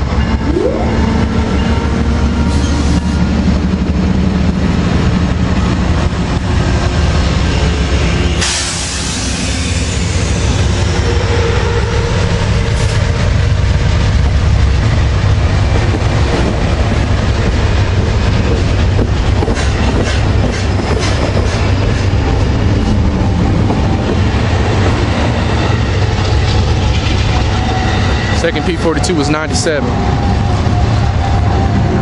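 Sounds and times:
passenger train rumbling past: 0.0 - 32.0
train wheels clicking over rail joints: 12.1 - 31.7.

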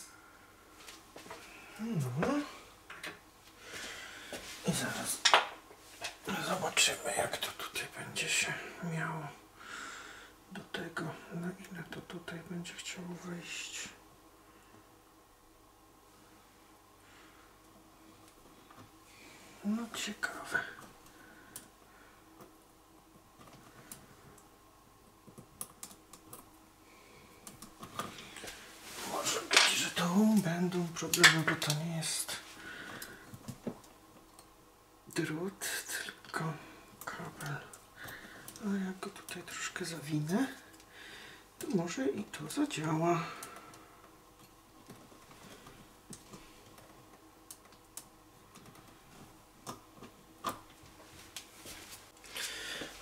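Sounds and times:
wires clicking and scraping: 25.2 - 26.6, 27.4 - 34.5.

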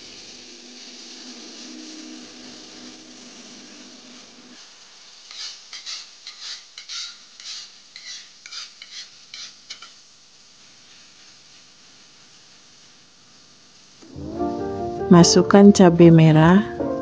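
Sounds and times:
faint steady hiss: 0.0 - 17.0
spatula scraping in a frying pan: 5.2 - 10.0.

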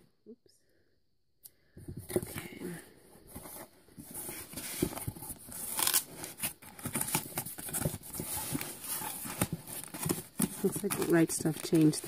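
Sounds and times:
cardboard rustle: 3.2 - 12.0.

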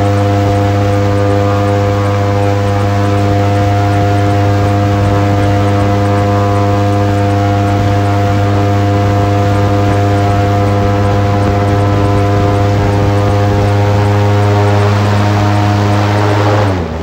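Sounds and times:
airboat engine and propeller hum: 0.0 - 17.0.

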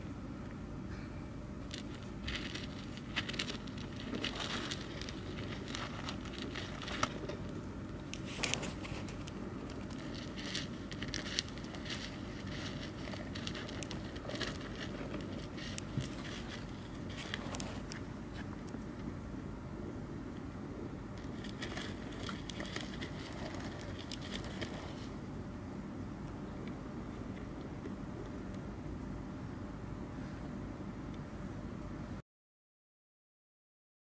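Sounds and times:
soil crackling and rustling: 1.6 - 18.8, 21.1 - 25.3.

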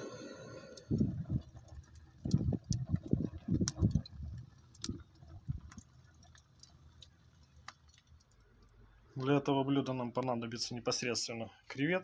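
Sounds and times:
low gusty rumbling: 0.0 - 5.8
wood fire crackling and popping: 0.0 - 11.9.

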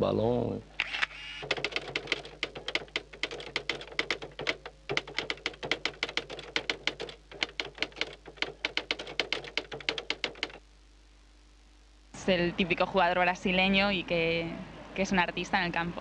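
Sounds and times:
typewriter key clicks: 1.4 - 10.6.

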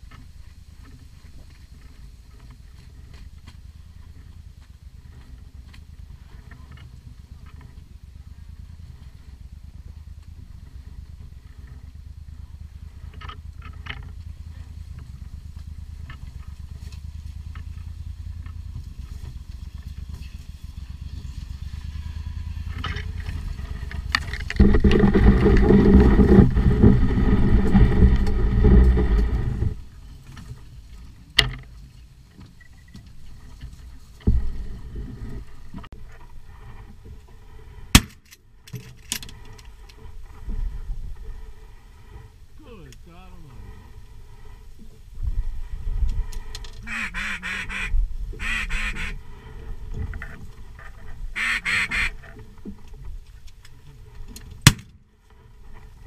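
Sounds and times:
outboard motor running: 0.0 - 37.9.

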